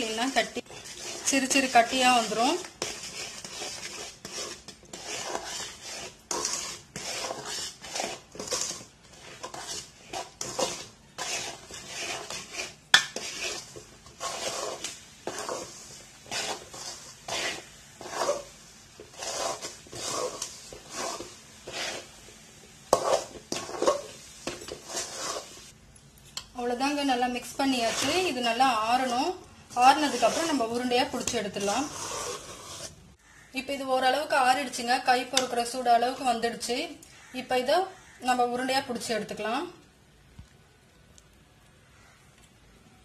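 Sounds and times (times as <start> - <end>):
metal spoon scraping pan: 0.0 - 25.7, 26.7 - 33.0.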